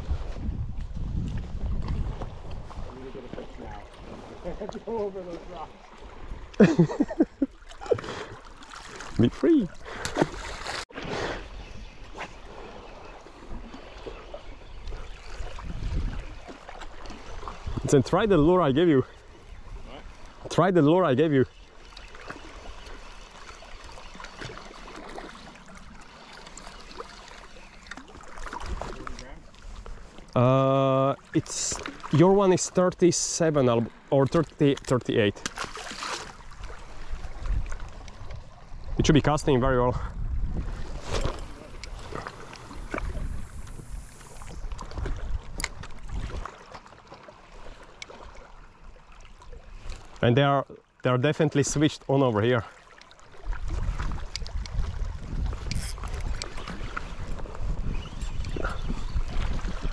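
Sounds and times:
wind rumbling on microphone: 0.0s - 4.5s, 11.3s - 16.5s, 36.6s - 46.5s, 53.4s - 59.9s
small waves lapping on rocks: 1.8s - 6.7s, 7.4s - 39.8s, 40.6s - 59.9s
small splashes: 7.4s - 11.4s, 21.7s - 30.4s, 33.9s - 38.6s, 40.8s - 50.2s.

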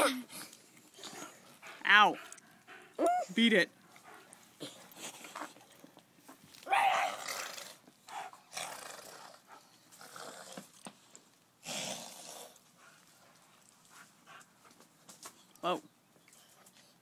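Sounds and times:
dogs growling: 7.0s - 10.8s.

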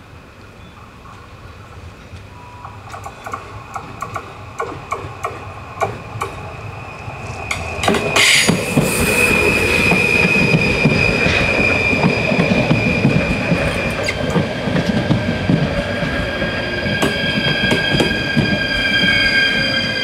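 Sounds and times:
passenger train rumbling past: 0.0s - 20.0s
train wheels squealing: 4.0s - 20.0s.

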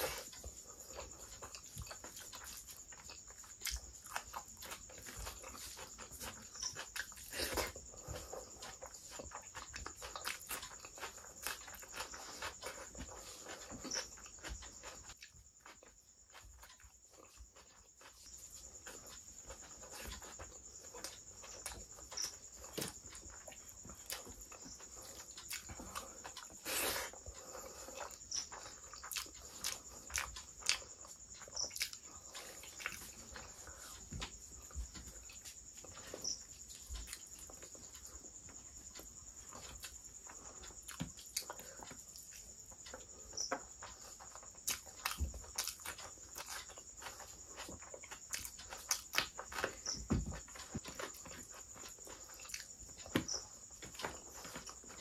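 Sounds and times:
wet chewing and lip smacks: 0.1s - 18.2s, 18.8s - 34.0s, 39.8s - 50.0s.

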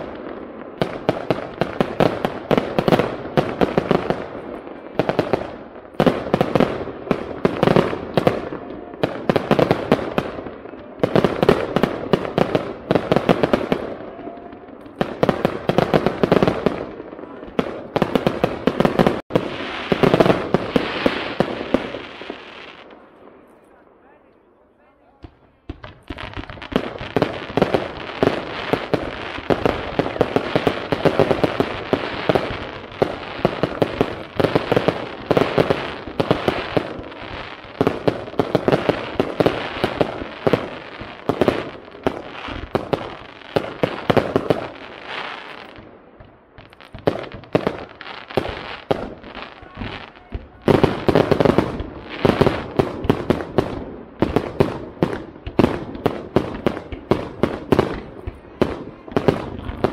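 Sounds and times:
firework bursts and crackling: 0.0s - 59.9s.

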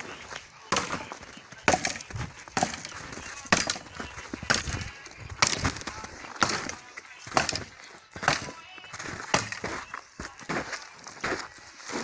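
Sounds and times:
wood splintering: 0.0s - 9.9s
axe chopping dry log: 0.7s - 8.6s, 9.2s - 9.8s.

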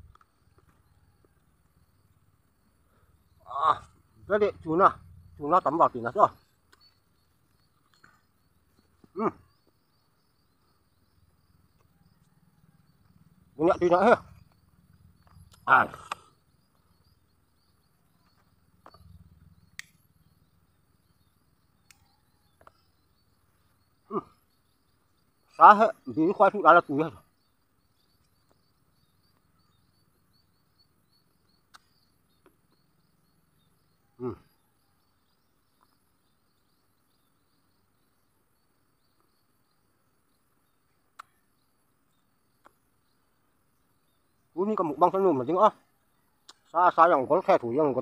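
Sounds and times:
high insect drone: 0.0s - 48.0s
insects chirping: 0.0s - 48.0s
faint clicks: 41.0s - 41.4s.

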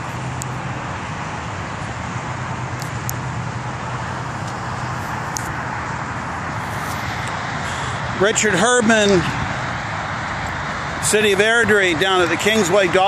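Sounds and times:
highway traffic roar: 0.0s - 13.0s.

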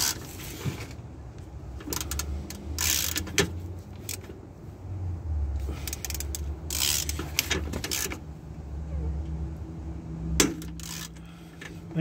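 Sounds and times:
ratchet clicks: 0.0s - 0.2s, 1.8s - 4.3s, 5.8s - 8.2s, 10.6s - 11.2s.

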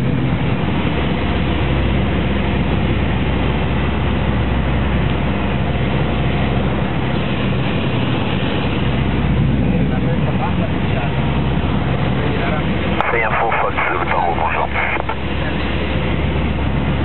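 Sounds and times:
aircraft engine and propeller droning: 0.0s - 17.0s.

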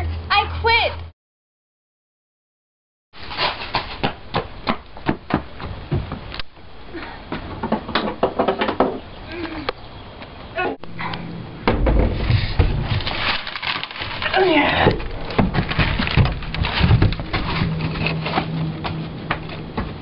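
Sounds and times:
knocks: 7.4s - 9.0s.

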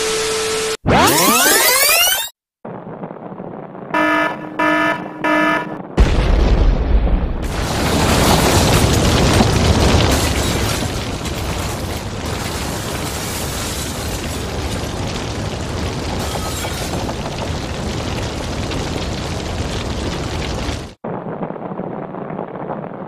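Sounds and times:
alcohol flames burning: 14.0s - 23.0s.

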